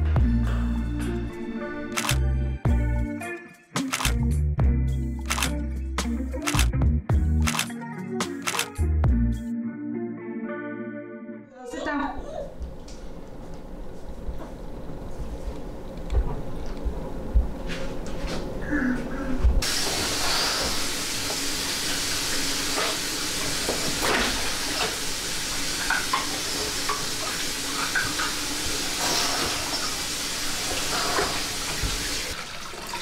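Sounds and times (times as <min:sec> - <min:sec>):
water running: 0:19.6 - 0:33.0.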